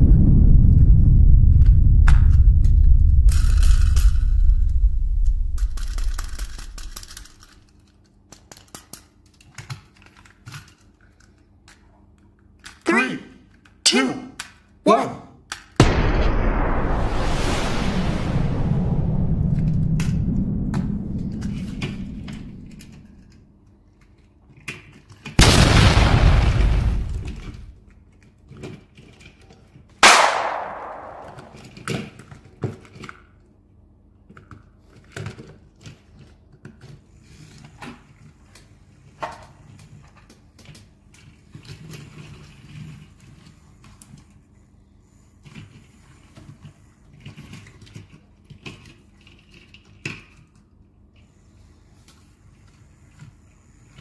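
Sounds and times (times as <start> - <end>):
sharp bang: 0.0 - 7.3, 15.8 - 23.2, 30.0 - 31.7
rushing crash: 0.0 - 7.5, 15.8 - 23.3, 25.4 - 27.7, 30.0 - 31.7.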